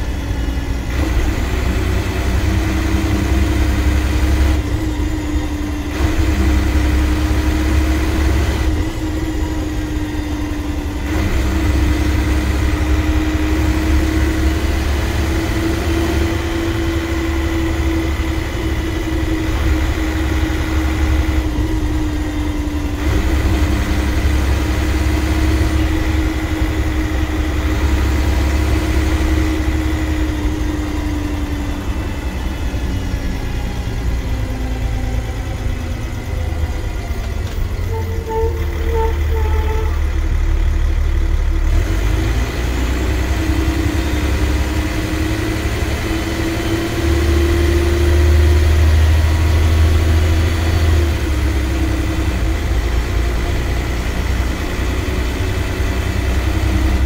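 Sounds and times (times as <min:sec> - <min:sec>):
bus engine rumble: 0:00.0 - 0:57.0
droning whine: 0:14.9 - 0:41.7.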